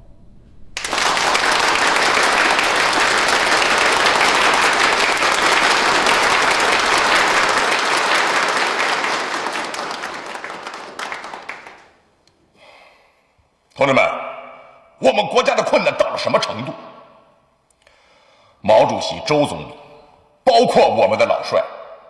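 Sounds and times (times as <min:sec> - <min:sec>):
large audience applauding: 0:00.8 - 0:12.0.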